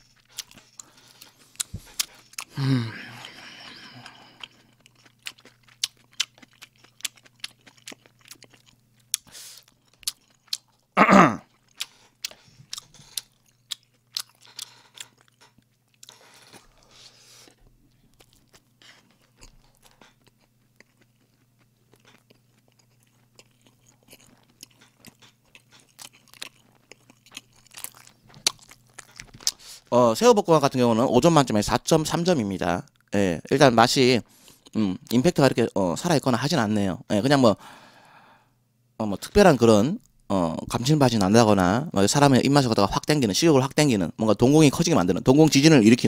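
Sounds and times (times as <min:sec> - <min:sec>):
chewing and mouth clicks: 0:00.0 - 0:02.5, 0:04.0 - 0:10.9, 0:11.5 - 0:29.9
faint low hum: 0:00.0 - 0:46.0
short loud vocal noise: 0:11.0 - 0:11.4.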